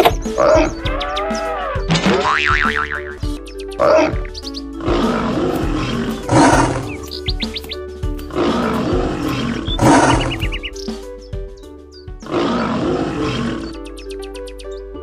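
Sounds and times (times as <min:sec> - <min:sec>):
cartoon background music: 0:00.0 - 0:15.0
big cats roaring and growling: 0:00.4 - 0:02.0, 0:03.8 - 0:07.1, 0:08.3 - 0:10.6, 0:12.2 - 0:13.8.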